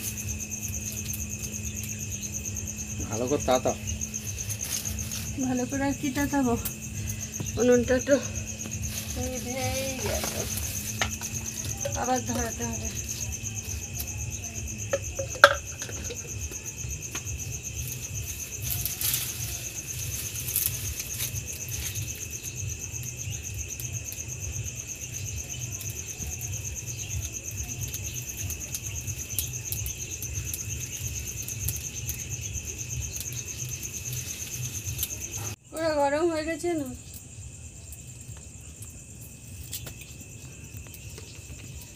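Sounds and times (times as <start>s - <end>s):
crickets chirping: 0.0s - 41.9s
dry twigs cracking: 3.8s - 14.1s, 17.0s - 22.6s, 27.9s - 35.4s
twigs knocking: 3.8s - 14.1s.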